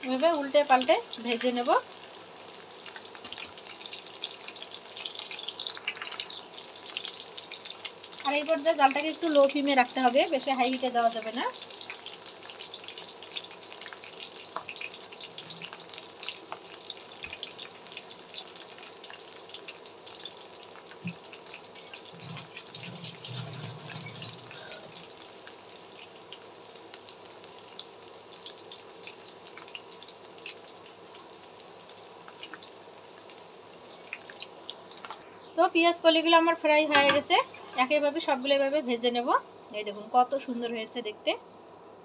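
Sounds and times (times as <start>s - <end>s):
deep-frying sizzle with pops: 0.0s - 42.0s.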